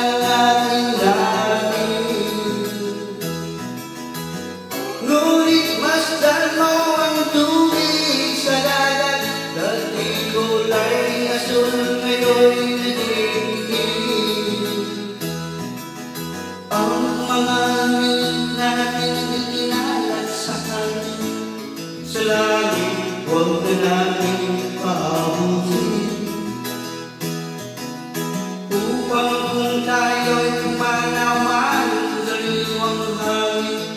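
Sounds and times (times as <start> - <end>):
man singing into a microphone: 0.0 - 3.8, 4.6 - 15.7, 16.4 - 26.9, 28.7 - 33.9
instrumental backing music: 0.0 - 33.9.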